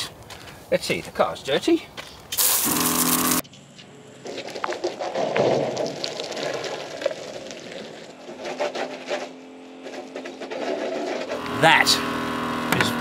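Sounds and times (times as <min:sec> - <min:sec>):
water spraying against vehicle: 0:02.4 - 0:03.4.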